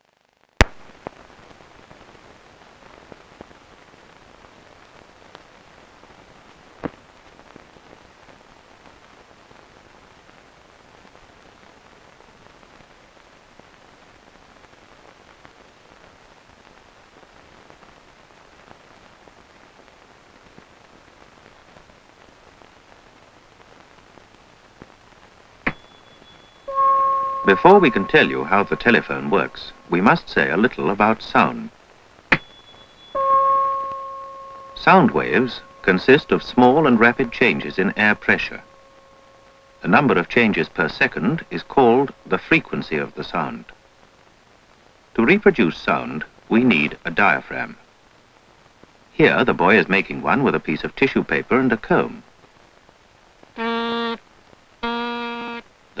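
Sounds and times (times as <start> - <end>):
film soundtrack hiss and crackle: 0.0 - 56.0.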